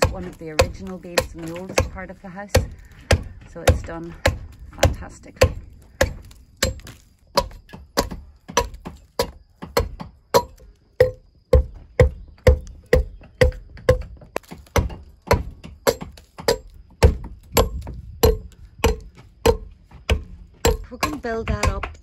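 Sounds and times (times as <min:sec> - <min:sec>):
hewing tool chopping wood: 0:00.0 - 0:22.0.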